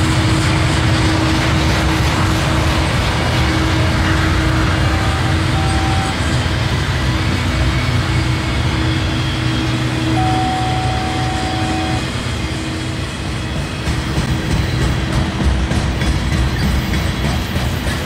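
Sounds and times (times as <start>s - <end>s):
train wheels rumbling on rail: 0.0s - 18.0s.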